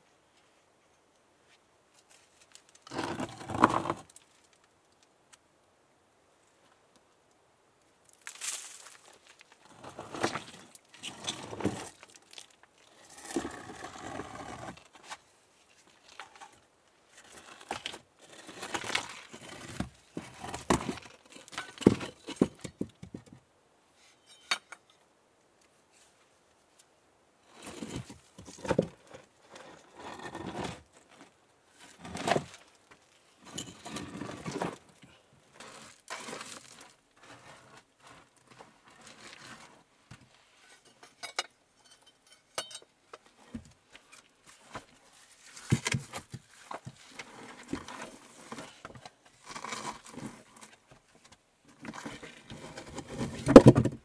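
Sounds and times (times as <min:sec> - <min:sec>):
stone scraping on stone: 0:02.9 - 0:04.1, 0:09.7 - 0:12.0, 0:12.9 - 0:14.8, 0:27.5 - 0:28.2, 0:29.5 - 0:30.9, 0:33.4 - 0:34.8.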